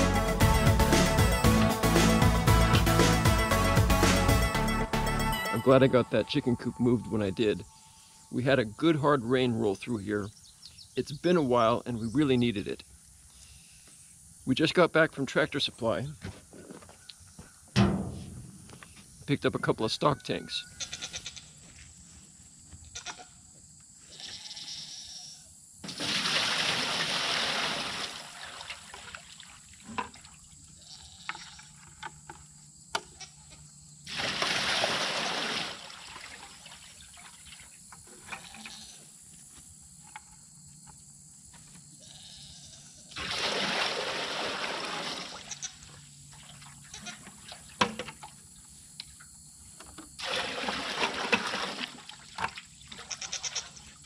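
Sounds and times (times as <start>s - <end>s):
water splashing into metal tank: 17.8s - 18.5s, 25.8s - 30.4s, 34.1s - 37.6s, 43.2s - 45.5s, 50.2s - 53.1s
bucket knocks: 17.8s - 18.7s.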